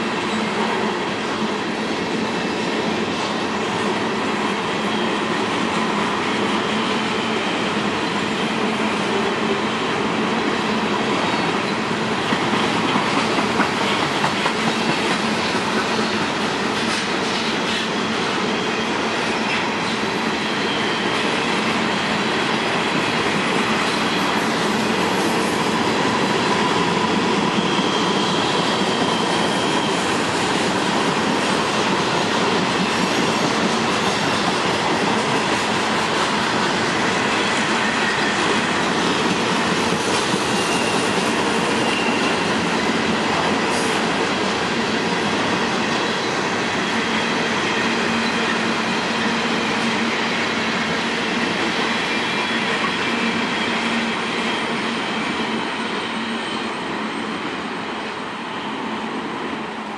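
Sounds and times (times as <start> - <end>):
train wheels rolling on rail: 0.0 - 59.9
wheel squeals: 40.4 - 42.9.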